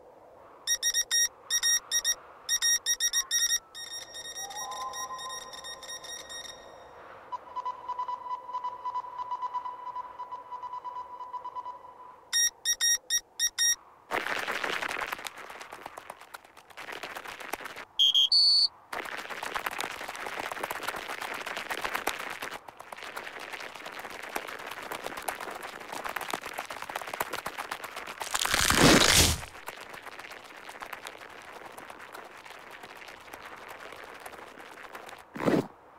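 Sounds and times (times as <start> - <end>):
squeaky chirps: 0.7 - 6.8
high whistling tone: 0.7 - 6.9
rush: 18.9 - 35.5
small feet crunching over snow: 26.6 - 35.7.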